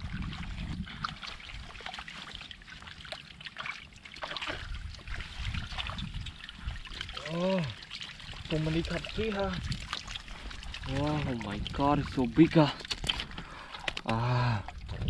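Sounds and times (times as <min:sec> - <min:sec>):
splashing in muddy water: 0:00.0 - 0:15.0.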